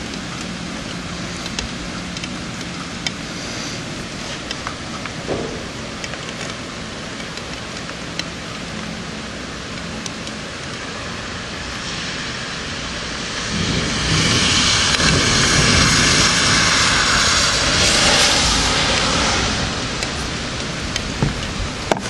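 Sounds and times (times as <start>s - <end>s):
steady rain: 0.0s - 22.0s
rolling thunder rumble: 4.8s - 7.2s, 11.2s - 22.0s.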